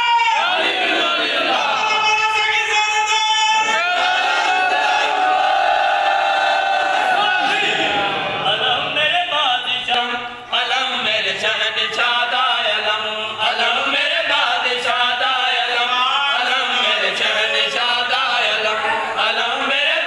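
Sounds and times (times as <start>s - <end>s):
men chanting devotional song: 0.0s - 20.0s.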